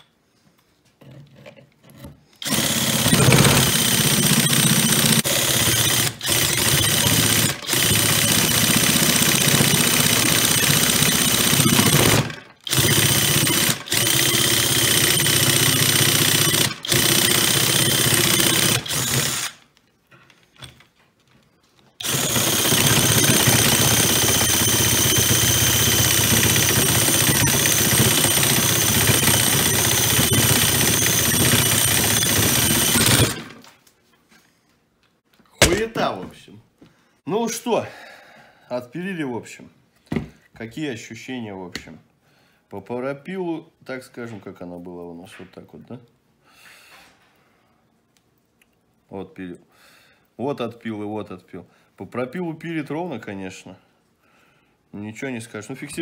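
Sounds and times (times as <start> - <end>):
drill motor whine: 2.4 - 19.6, 22.0 - 33.6.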